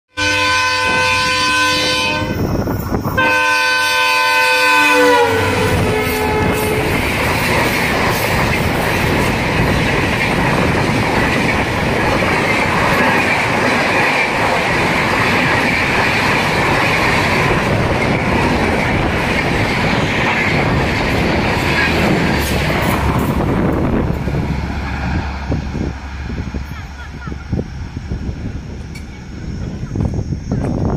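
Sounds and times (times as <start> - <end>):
locomotive horn blasts: 0.1 - 2.5, 3.2 - 7.1
train wheels clattering past: 5.3 - 27.2.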